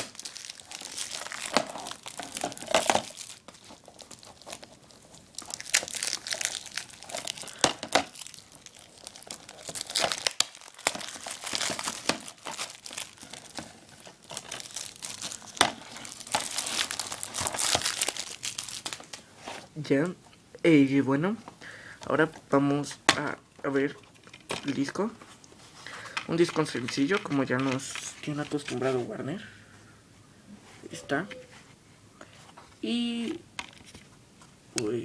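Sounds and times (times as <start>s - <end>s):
plastic wrap crinkling: 0.0s - 19.3s.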